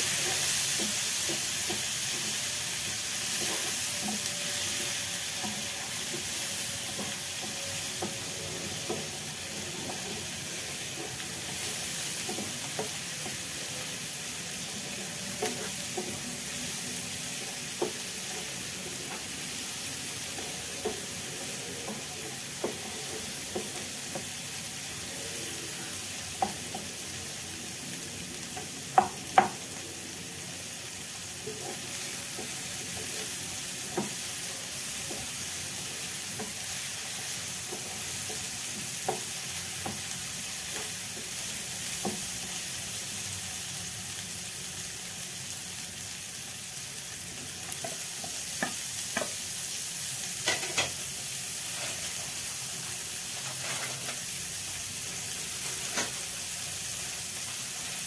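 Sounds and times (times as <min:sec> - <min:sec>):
vegetables sizzling in a frying pan: 0:00.0 - 0:58.0
spatula knocking on pan: 0:28.9 - 0:29.6.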